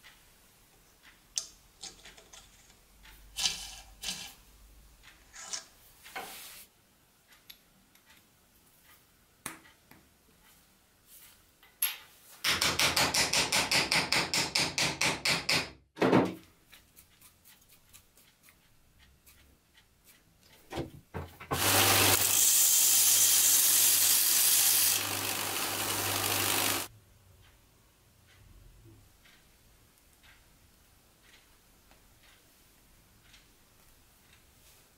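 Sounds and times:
knock: 12.5s - 16.4s
belt grinder humming: 21.5s - 26.9s.

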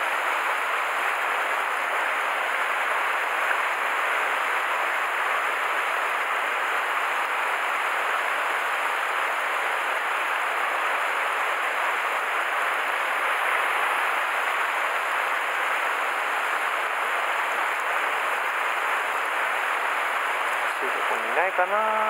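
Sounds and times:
stream rushing over rocks: 0.0s - 22.0s.

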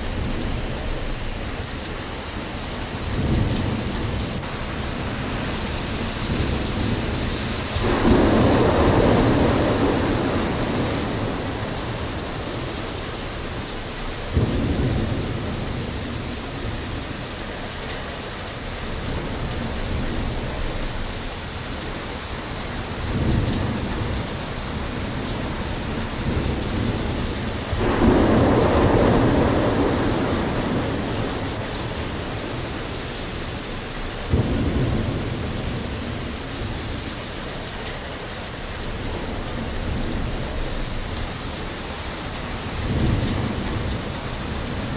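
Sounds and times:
heavy rain: 0.0s - 44.9s
thunder rolling: 3.1s - 17.3s, 23.0s - 37.2s, 42.6s - 44.9s
thunder crack: 6.1s - 13.6s, 26.2s - 32.8s, 34.2s - 36.8s.

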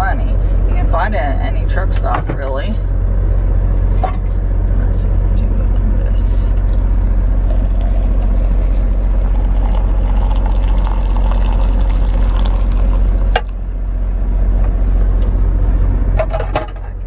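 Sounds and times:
truck engine idling: 0.0s - 17.0s
water pouring into steel tumbler: 7.4s - 13.3s.

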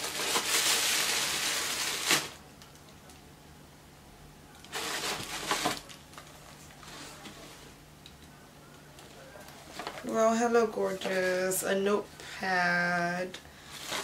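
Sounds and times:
tissue paper rustling: 0.0s - 2.4s, 4.7s - 7.7s, 9.1s - 11.7s, 13.6s - 14.0s.

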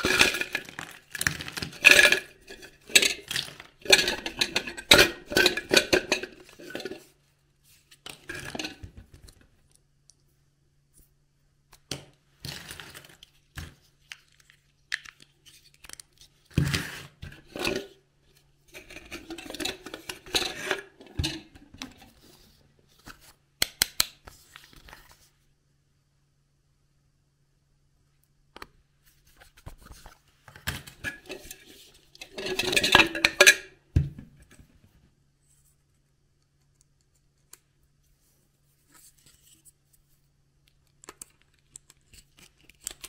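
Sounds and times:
plastic toy pieces clattering: 0.0s - 7.1s.

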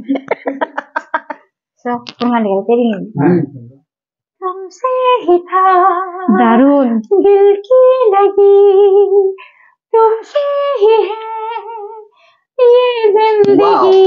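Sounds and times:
woman singing unaccompanied: 4.4s - 14.0s.

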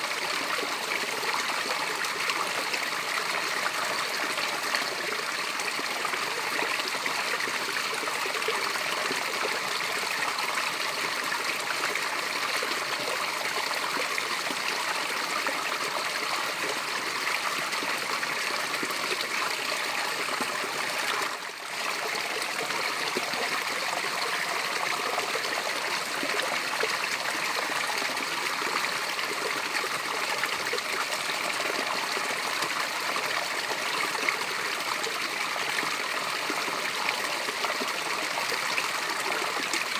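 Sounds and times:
small waterfall splashing: 0.0s - 39.9s.

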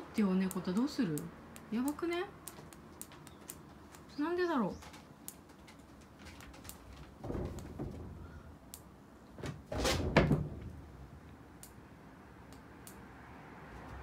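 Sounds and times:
cat thumping against sliding door: 7.0s - 8.4s, 9.4s - 10.9s.

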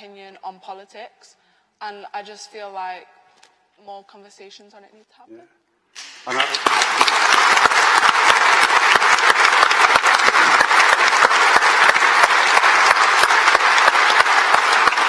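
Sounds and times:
large audience applauding: 6.0s - 15.0s.

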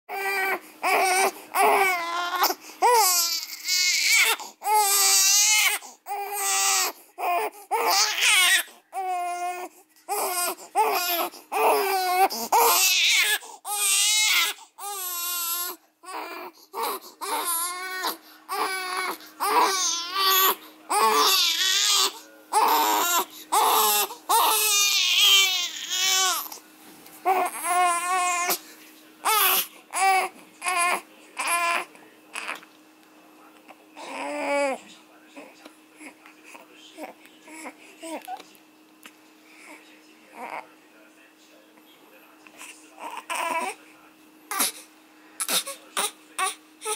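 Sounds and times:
infant crying: 0.1s - 26.6s, 27.2s - 28.6s, 29.2s - 32.6s, 34.0s - 34.8s, 40.3s - 40.6s, 43.0s - 43.8s, 44.5s - 46.9s.

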